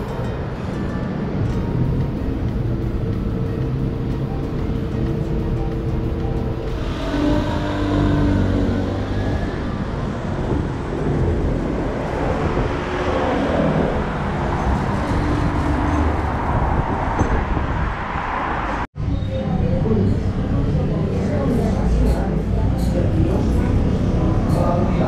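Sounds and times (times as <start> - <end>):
street traffic rumble: 0.0 - 25.0
vehicle passing by: 1.5 - 18.9.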